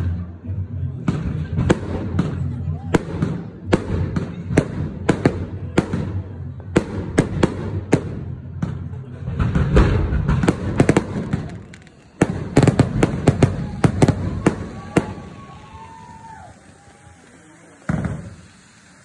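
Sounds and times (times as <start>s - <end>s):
fireworks bangs: 1.0s - 19.0s.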